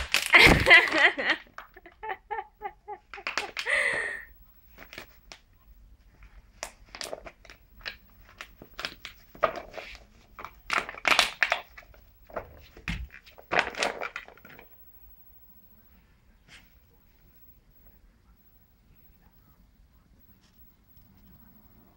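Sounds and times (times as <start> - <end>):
plastic crackling and crunching: 0.0 - 1.7, 3.1 - 3.7, 6.5 - 14.8.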